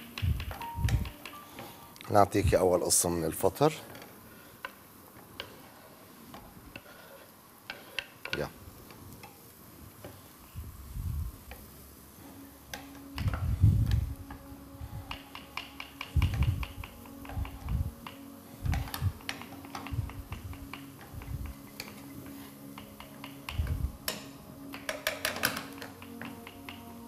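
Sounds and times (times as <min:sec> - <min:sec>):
wooden spoon tapping a pan: 0:15.1 - 0:18.2, 0:22.7 - 0:27.0.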